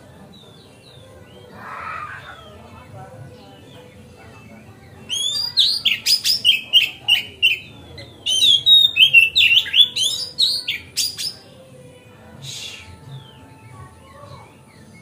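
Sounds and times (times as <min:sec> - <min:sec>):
bird singing varied whistles: 0:05.1 - 0:11.4.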